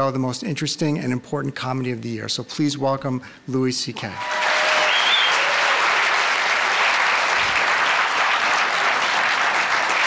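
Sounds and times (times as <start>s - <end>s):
audience applauding: 4.2s - 10.0s.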